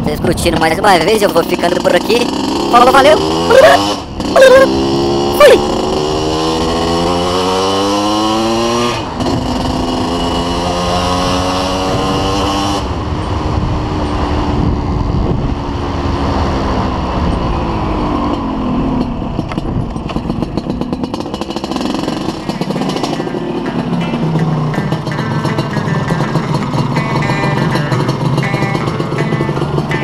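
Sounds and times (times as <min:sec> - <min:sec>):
two-stroke motorcycle engine accelerating: 0:00.0 - 0:30.0.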